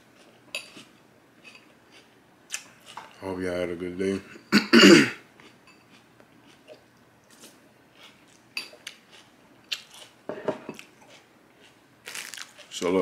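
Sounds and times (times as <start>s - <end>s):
chewing crunches: 5.4s - 10.2s, 10.8s - 12.8s.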